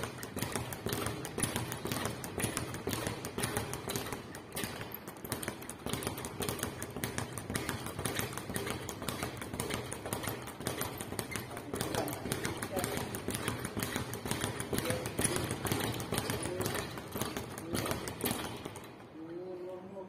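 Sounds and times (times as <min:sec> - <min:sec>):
speed bag punching: 0:00.0 - 0:19.1.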